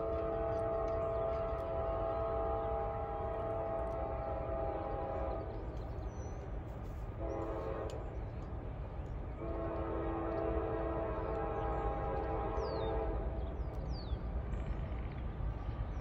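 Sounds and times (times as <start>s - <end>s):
locomotive air horn: 0.0s - 5.4s, 7.2s - 8.0s, 9.4s - 13.4s.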